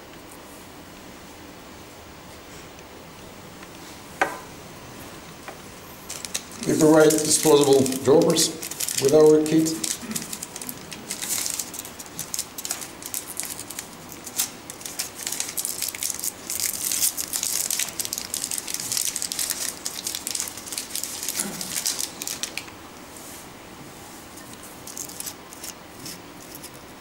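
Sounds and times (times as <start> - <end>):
plastic wrapper crinkling: 6.1 - 22.8, 24.8 - 26.8.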